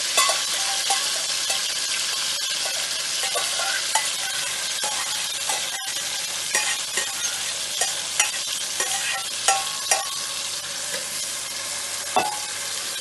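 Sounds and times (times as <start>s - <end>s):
vegetables sizzling in hot oil: 0.0s - 13.0s
spoon clinking on metal pot: 0.2s - 1.7s, 2.6s - 10.3s.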